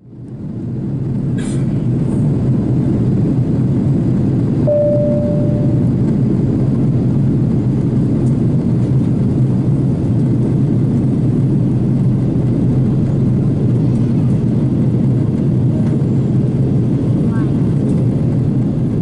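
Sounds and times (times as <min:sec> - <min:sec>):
airplane cabin engine rumble: 0:00.0 - 0:19.0
steady hum: 0:00.5 - 0:08.2.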